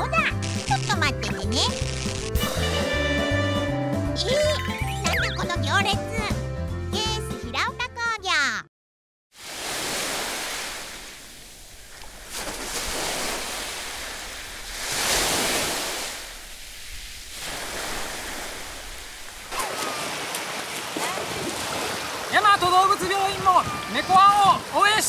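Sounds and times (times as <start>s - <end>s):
surf and splashing water: 9.3s - 25.0s.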